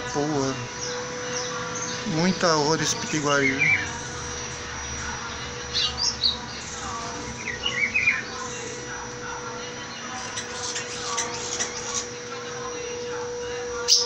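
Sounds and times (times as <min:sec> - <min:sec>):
faint steady hum: 0:00.0 - 0:14.0
bird whistling song: 0:03.0 - 0:04.1, 0:05.3 - 0:08.9, 0:13.8 - 0:14.0.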